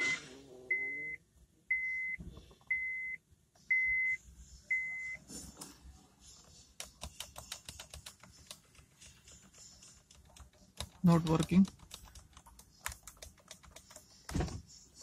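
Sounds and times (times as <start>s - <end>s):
dashboard warning chime beeping: 0.0s - 5.2s.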